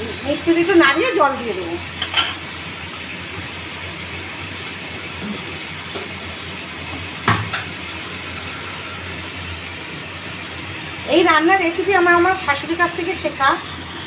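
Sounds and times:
food sizzling in hot pan: 0.0 - 14.0.

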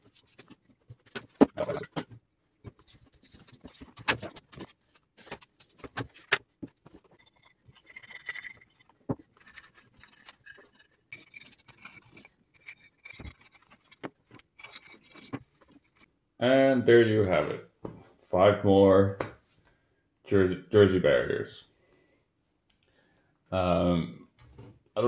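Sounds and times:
rubbing and scraping: 0.0 - 16.1.

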